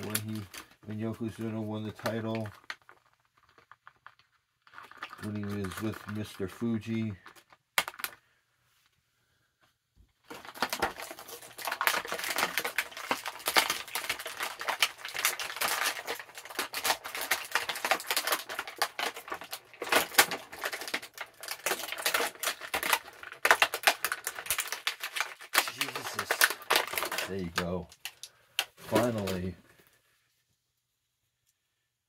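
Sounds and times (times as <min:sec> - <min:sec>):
plastic packaging crinkling: 0:00.0 - 0:08.2, 0:10.2 - 0:29.9.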